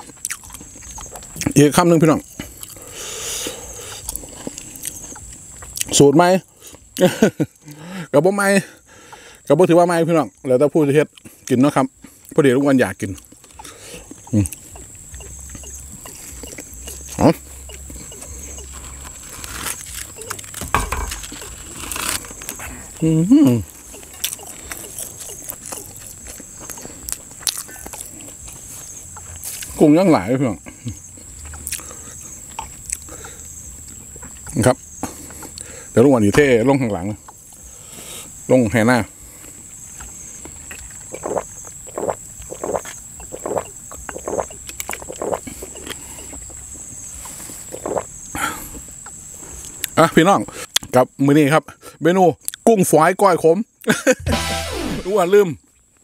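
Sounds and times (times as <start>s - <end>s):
man chewing with mouth smacks: 0.0s - 1.6s, 2.3s - 6.0s, 13.0s - 29.8s, 30.7s - 35.8s, 39.4s - 50.0s
person gulping water: 13.5s - 18.8s, 41.1s - 45.9s.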